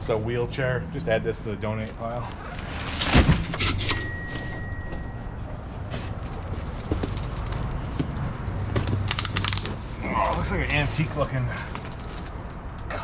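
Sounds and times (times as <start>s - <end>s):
footsteps: 3.5s - 9.0s.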